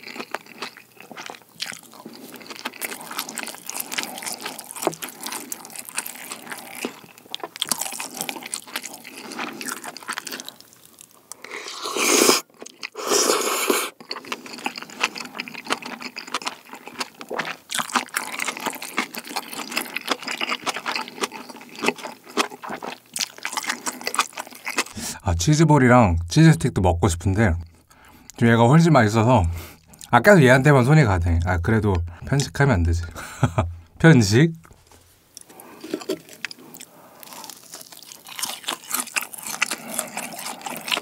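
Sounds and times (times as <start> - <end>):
crunchy chewing: 0.0 - 25.0, 34.6 - 41.0.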